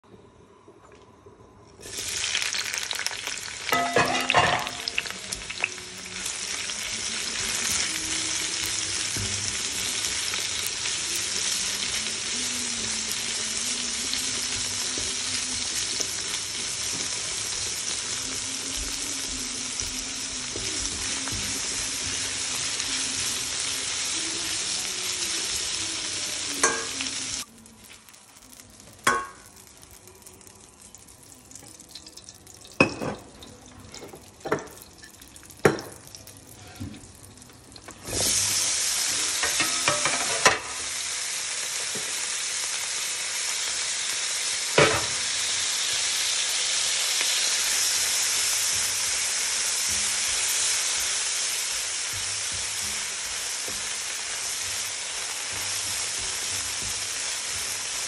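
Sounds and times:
peppers sizzling in oil: 0:01.8 - 0:58.0.

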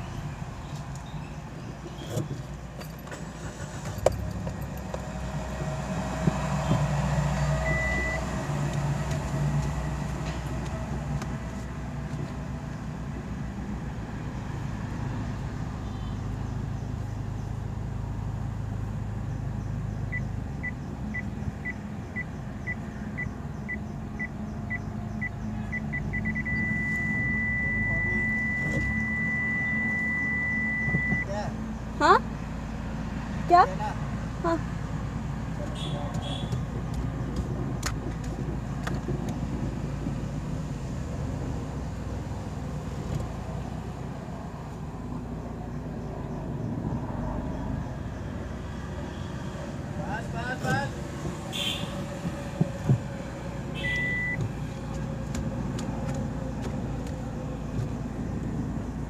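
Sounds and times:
car engine running low: 0:00.0 - 0:32.9, 0:49.6 - 0:59.0
parking sensor beeps: 0:07.6 - 0:08.3, 0:20.1 - 0:31.3, 0:53.8 - 0:54.4.

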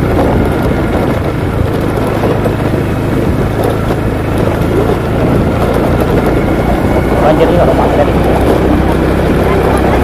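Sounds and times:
scooter engine running: 0:00.0 - 0:10.0
wind and road noise: 0:00.0 - 0:10.0.

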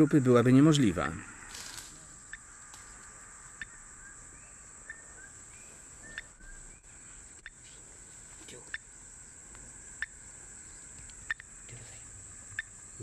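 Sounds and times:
high insect drone: 0:00.0 - 0:13.0
bird chirps: 0:02.2 - 0:07.8.

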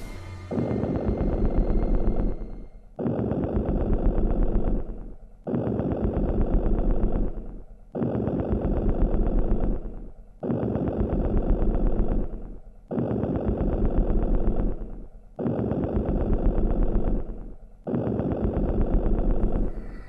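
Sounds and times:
deep bass hum: 0:00.0 - 0:02.8
gritty buzzing electronic phrase: 0:00.0 - 0:02.9.

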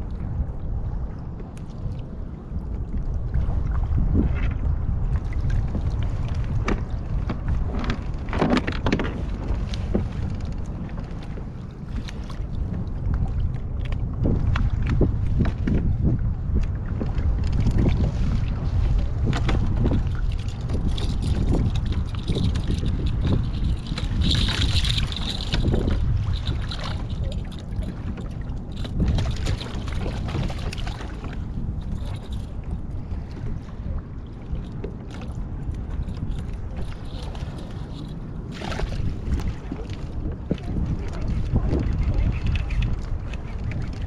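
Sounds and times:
water sloshing against hull: 0:00.0 - 0:44.0
wind rumbling on microphone: 0:00.0 - 0:44.0.

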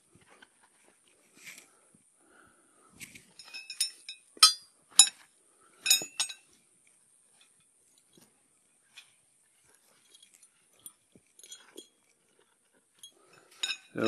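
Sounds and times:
hammer clinking on metal stakes: 0:03.4 - 0:05.2, 0:05.8 - 0:06.5, 0:13.0 - 0:14.0.

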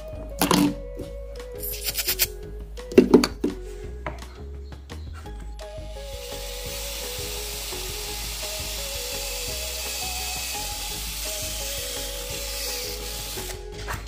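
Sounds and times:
cordless drill boring plastic: 0:05.9 - 0:13.7.

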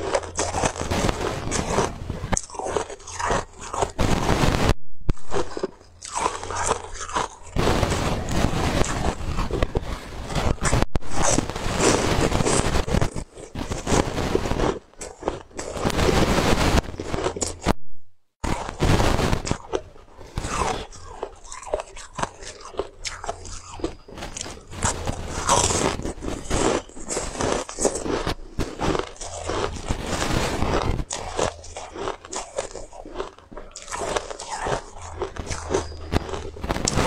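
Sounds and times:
crunchy chewing: 0:00.0 - 0:17.8, 0:18.4 - 0:37.0.

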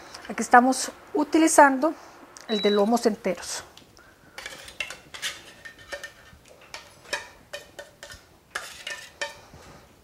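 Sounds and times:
knife scraping in metal can: 0:04.4 - 0:09.4.

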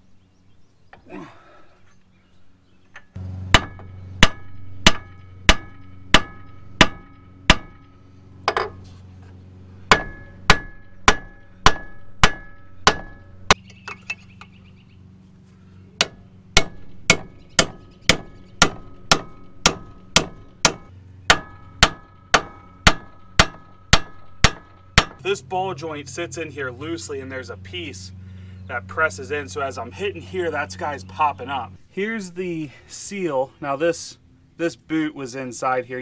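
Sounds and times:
hammer blows on metal: 0:03.2 - 0:08.8.

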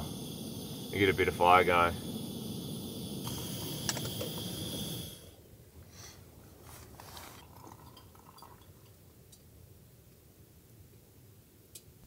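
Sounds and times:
gas stove burner hissing: 0:00.0 - 0:06.1.

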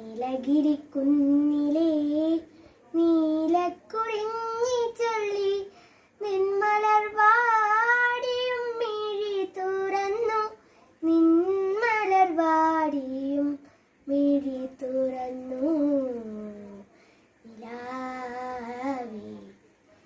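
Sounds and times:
girl singing unaccompanied: 0:00.0 - 0:19.6.

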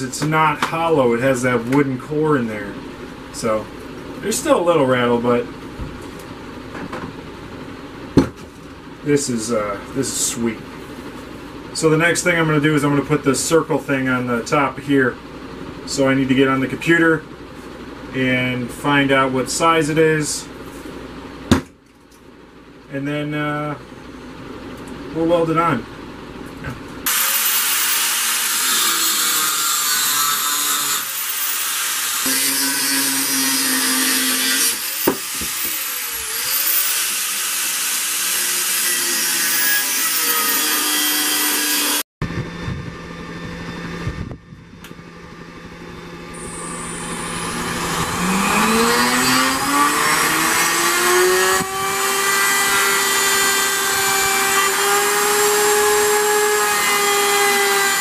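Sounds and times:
die grinder whining: 0:27.0 - 0:58.0
angle grinder cutting steel: 0:27.1 - 0:42.0, 0:46.3 - 0:58.0.

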